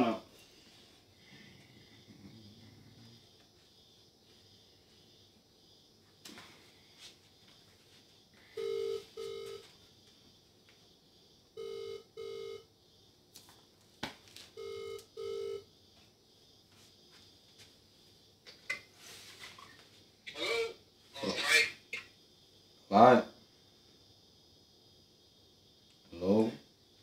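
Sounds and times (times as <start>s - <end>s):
telephone ringback tone: 8.6s - 9.7s, 11.6s - 12.6s, 14.6s - 15.6s.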